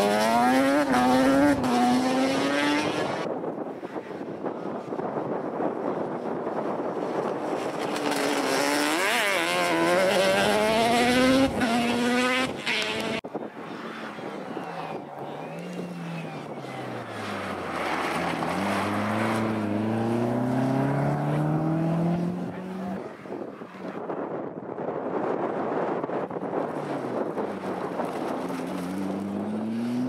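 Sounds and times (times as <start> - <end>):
race car engine accelerating: 0.0 - 3.3, 8.1 - 13.2, 13.9 - 23.0
quad bike engine accelerating: 7.6 - 13.2, 18.2 - 23.0, 27.1 - 30.0.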